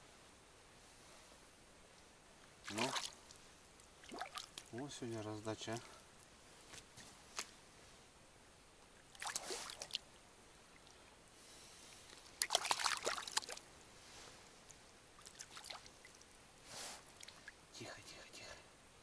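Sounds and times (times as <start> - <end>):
water splashing and sloshing: 2.6 - 5.9, 8.9 - 11.1, 11.9 - 13.7, 14.6 - 16.4, 17.0 - 17.6.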